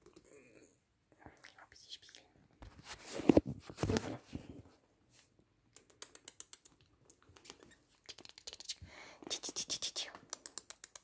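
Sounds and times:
puppy claws clicking: 0:05.7 - 0:08.8, 0:10.1 - 0:11.0.

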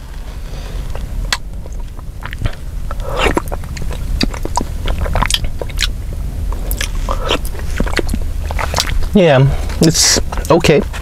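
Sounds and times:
person sipping soup: 0:00.2 - 0:05.9, 0:06.5 - 0:10.4
lip smacks and mouth clicks: 0:01.3 - 0:09.1.

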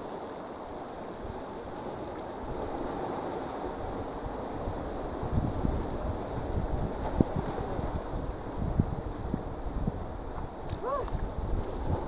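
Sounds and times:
surf breaking over rocks: 0:00.0 - 0:12.0
wind buffeting microphone: 0:02.4 - 0:12.0.

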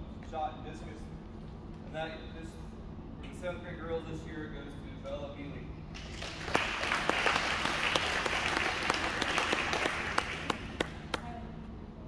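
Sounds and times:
audience applauding: 0:06.0 - 0:11.2.

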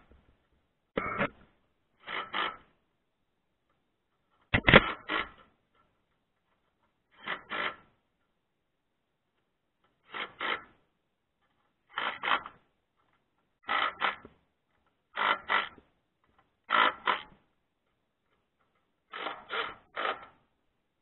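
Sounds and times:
cordless drill driving screws: 0:02.0 - 0:02.7, 0:04.6 - 0:05.5, 0:07.1 - 0:07.9, 0:10.0 - 0:10.8, 0:11.9 - 0:12.6, 0:13.6 - 0:14.4, 0:15.2 - 0:15.8, 0:16.6 - 0:17.4, 0:19.1 - 0:20.4.

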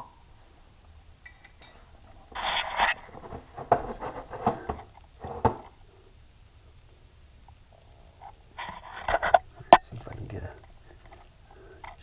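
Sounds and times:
metal tool clinking on bolts: 0:01.2 - 0:01.9.

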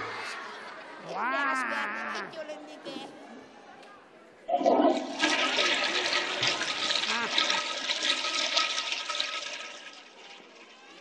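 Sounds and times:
toilet flushing: 0:04.5 - 0:11.0.

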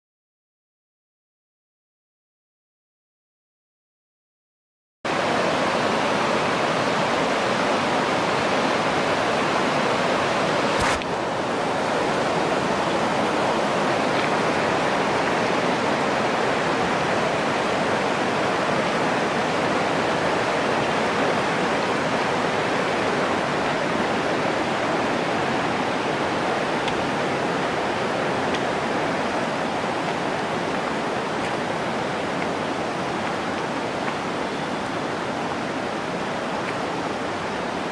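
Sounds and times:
river rushing over boulders: 0:05.1 - 0:37.9
sharp click: 0:10.8 - 0:11.1.

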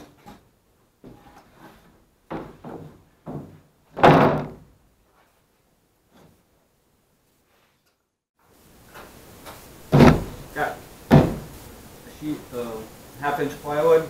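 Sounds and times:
plywood knocks and bumps: 0:01.0 - 0:04.7, 0:09.9 - 0:10.4, 0:11.1 - 0:11.6
plywood sheet thud: 0:02.3 - 0:04.8, 0:09.9 - 0:11.6.

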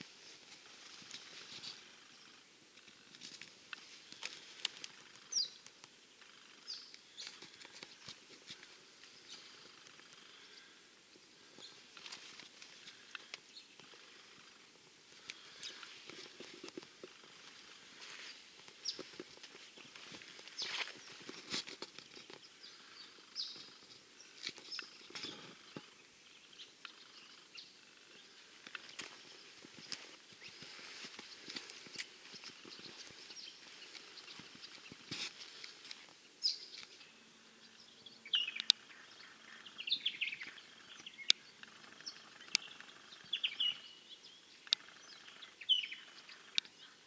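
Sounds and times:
bird chirps: 0:03.7 - 0:08.2, 0:11.4 - 0:47.0
high bird chirps: 0:36.4 - 0:47.0.

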